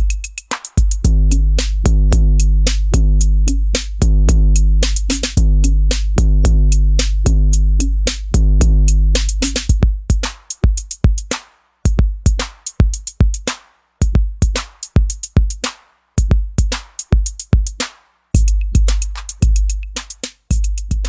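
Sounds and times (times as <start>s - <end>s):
drum machine kick drums: 0.0s - 21.0s
hi-hat hits: 0.0s - 21.0s
snare or clap hits: 0.4s - 1.0s, 11.3s - 11.7s, 12.4s - 12.8s, 13.5s - 13.8s, 14.6s - 15.0s, 15.6s - 16.0s, 16.7s - 17.2s, 17.8s - 18.2s, 18.9s - 19.4s.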